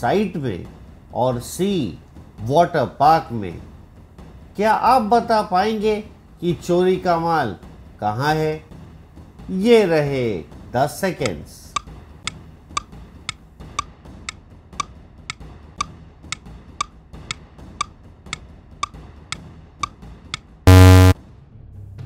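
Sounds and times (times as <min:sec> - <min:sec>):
countdown clock ticking: 0:20.7 - 0:21.2
loud buzzer: 0:20.7 - 0:21.2.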